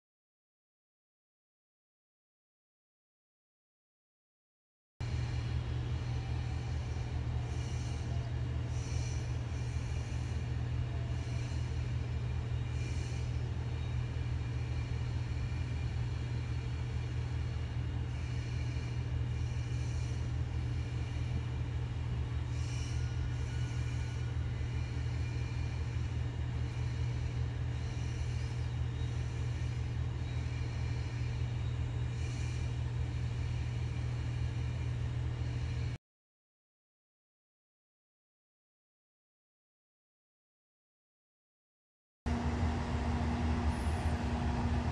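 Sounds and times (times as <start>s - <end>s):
locomotive blowers humming: 42.3s - 44.9s.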